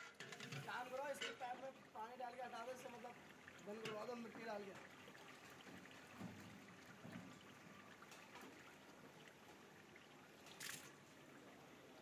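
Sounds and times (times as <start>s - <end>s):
water trickling: 0.0s - 12.0s
water splash: 10.4s - 11.1s.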